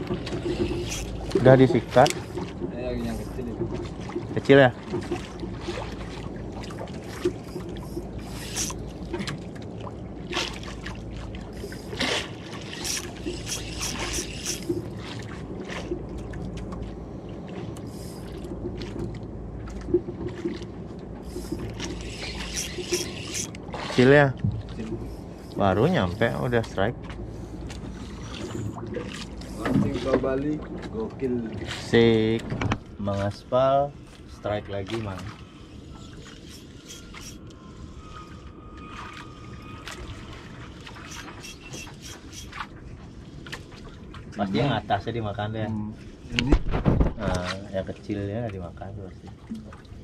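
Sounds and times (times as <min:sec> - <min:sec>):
sharp splashes and clicks: 0:00.0 - 0:32.9, 0:38.9 - 0:42.8
boat engine drone: 0:00.0 - 0:46.6
water noise: 0:00.0 - 0:50.0
wind and sea wash: 0:00.0 - 0:50.0.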